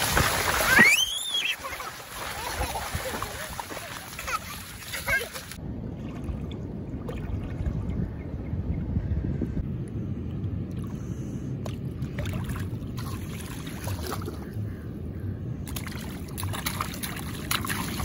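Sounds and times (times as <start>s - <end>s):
water splashing: 0.0s - 8.0s, 11.6s - 14.5s, 15.7s - 18.0s
wind on microphone: 5.7s - 9.8s.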